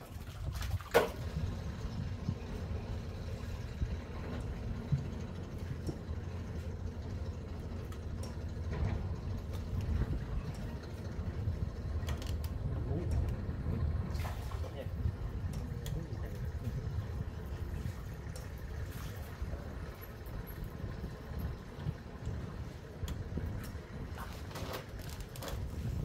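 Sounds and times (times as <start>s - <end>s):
engine rumbling: 0.0s - 26.0s.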